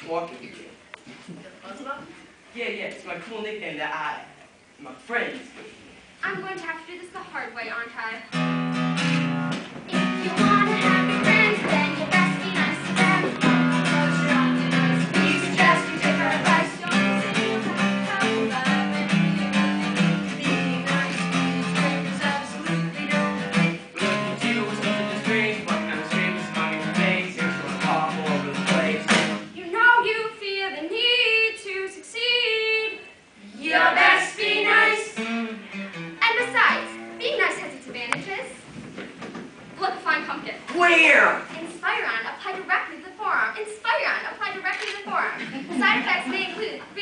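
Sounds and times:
strummed acoustic guitar: 8.3 - 29.5, 33.8 - 37.6
voices singing: 9.9 - 35.5.

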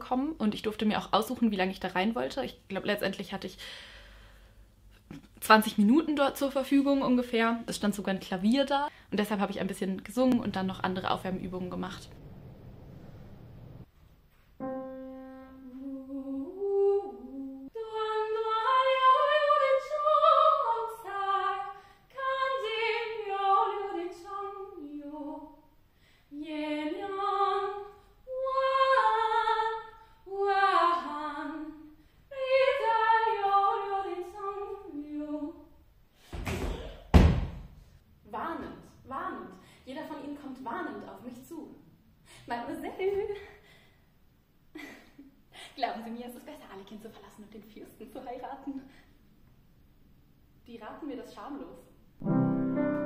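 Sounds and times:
woman singing vocal warm-up: 15.1 - 25.6, 26.3 - 35.8.

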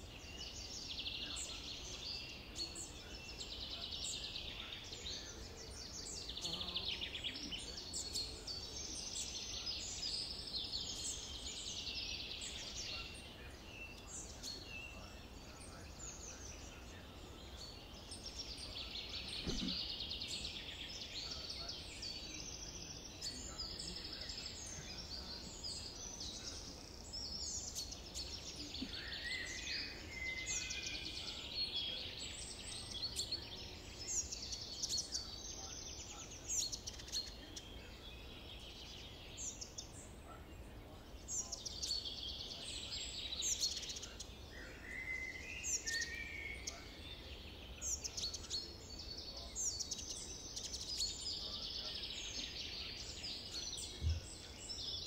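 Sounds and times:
faint outdoor hum: 0.0 - 44.9
songbirds singing and chirping: 0.0 - 55.0.

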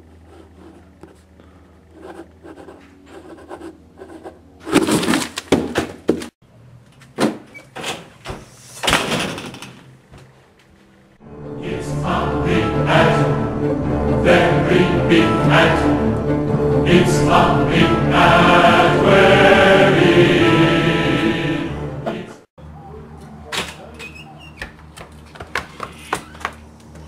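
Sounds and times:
pen scratching on paper: 0.2 - 1.2, 1.9 - 5.0
music: 11.2 - 22.5.

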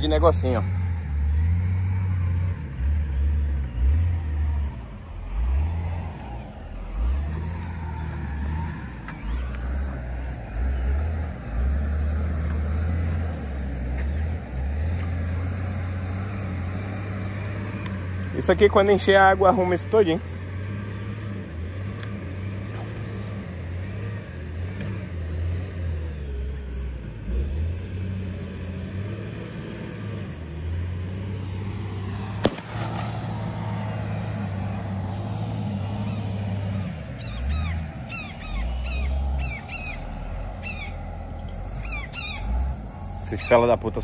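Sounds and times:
birds chirping: 0.0 - 44.0
heavy machinery engine rumble: 0.0 - 44.0
sharp crack: 32.2 - 34.9.

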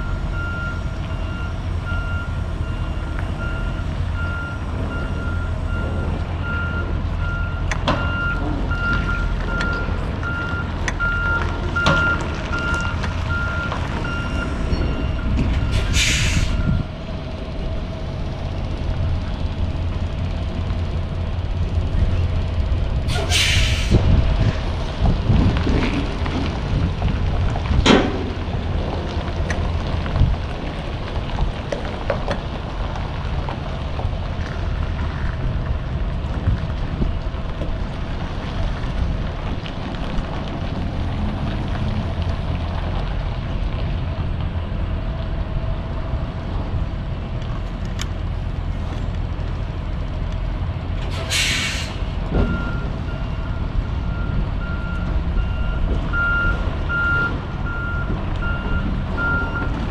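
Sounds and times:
reversing beeper: 0.0 - 16.9, 52.4 - 59.8
diesel truck engine running: 0.0 - 59.9
air brake hiss: 15.7 - 16.6, 23.1 - 24.0, 51.1 - 52.1.

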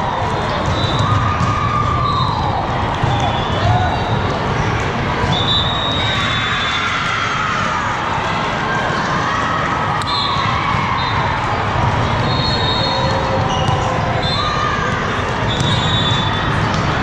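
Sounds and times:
balls hit and bouncing: 0.2 - 5.5, 9.9 - 17.0.

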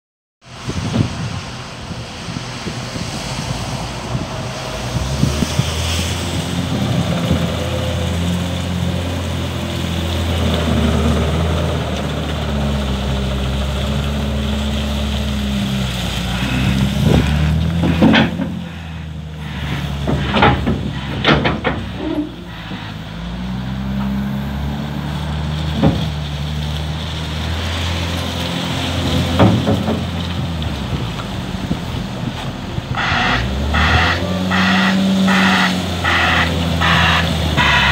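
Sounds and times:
diesel engine revving: 0.4 - 37.9
metallic knocks and clunks: 17.2 - 18.7, 19.6 - 22.4.

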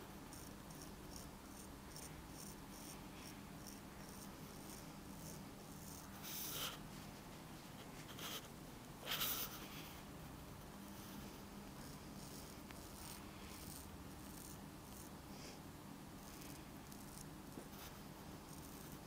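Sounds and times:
razor scraping stubble: 0.3 - 6.8, 11.8 - 15.1, 16.2 - 19.0.

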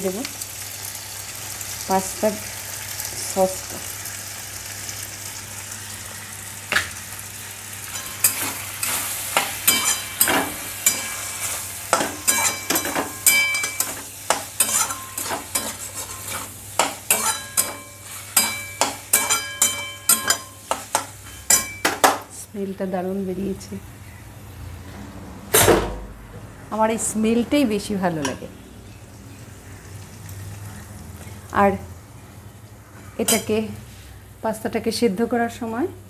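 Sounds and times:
food sizzling in a wok: 0.0 - 24.6, 27.2 - 36.0
metal spoon scraping a pan: 7.9 - 22.2, 33.2 - 33.6.

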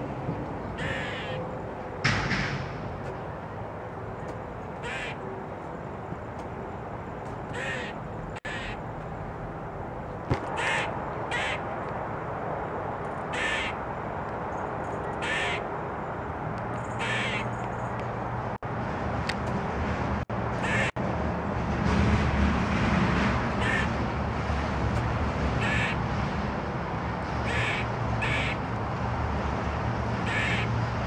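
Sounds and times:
squirrel scolding alarm calls: 0.7 - 1.4, 4.8 - 5.2, 7.5 - 8.8, 10.4 - 11.7, 13.3 - 13.8, 15.0 - 15.7, 16.7 - 17.8, 20.6 - 21.0, 23.6 - 23.9, 25.6 - 26.0, 27.4 - 28.7, 30.2 - 30.8.

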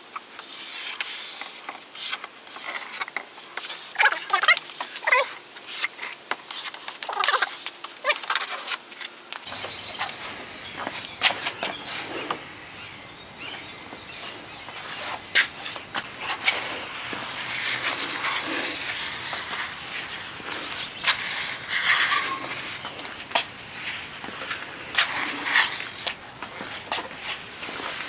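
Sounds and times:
plastic spreader scraping plywood: 15.7 - 28.0.

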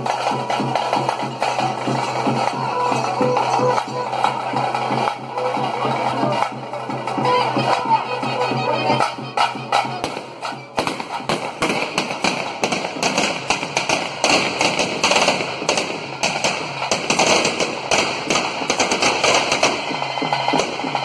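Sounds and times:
firecrackers banging: 0.0 - 21.0.

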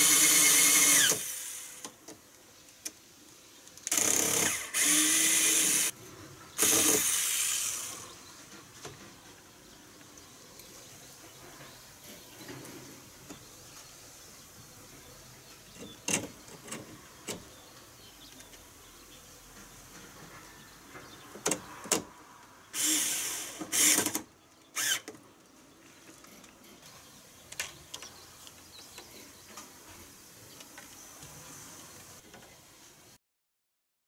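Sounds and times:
cordless drill running: 0.0 - 1.8, 3.9 - 5.9, 6.6 - 8.0, 22.8 - 24.2, 24.8 - 25.1.

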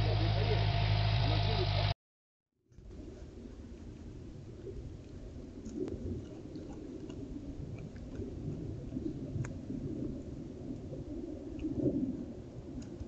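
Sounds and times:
low steady rumble: 0.0 - 2.0
faint clicks and ticks: 2.7 - 9.6, 10.7 - 13.0.

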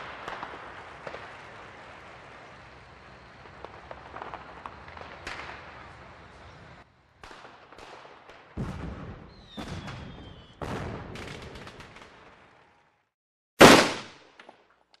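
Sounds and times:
distant fireworks booming: 0.0 - 12.6
loud firework blast: 13.6 - 14.2.

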